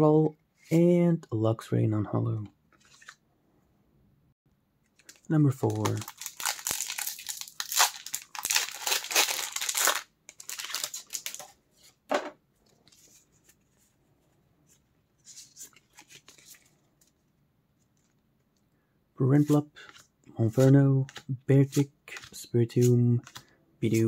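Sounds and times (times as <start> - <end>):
foil wrapper tearing and crinkling: 5.0 - 11.5.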